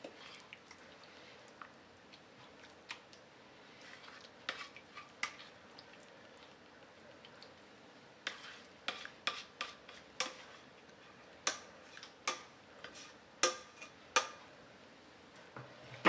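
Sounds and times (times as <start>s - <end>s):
spatula scraping metal frying pan: 3.8s - 5.5s, 8.2s - 10.7s, 12.8s - 14.0s.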